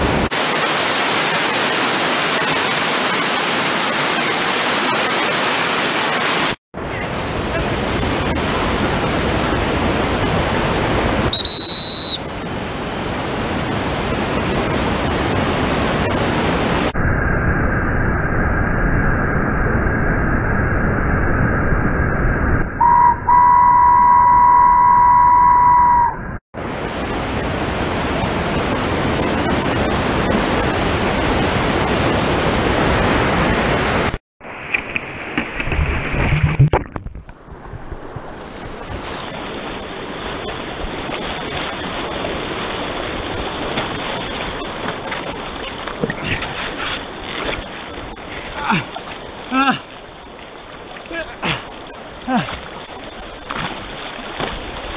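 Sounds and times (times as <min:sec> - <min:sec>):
steady high tone: 0:22.7 - 0:26.4
whitewater roaring: 0:39.1 - 0:54.9.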